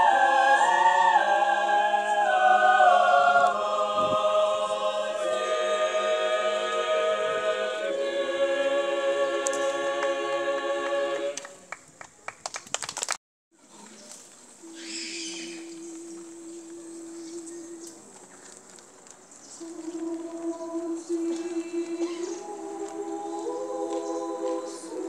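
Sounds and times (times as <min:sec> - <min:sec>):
mixed choir singing a cappella: 0:00.0 - 0:11.6, 0:15.4 - 0:18.0, 0:19.6 - 0:25.0.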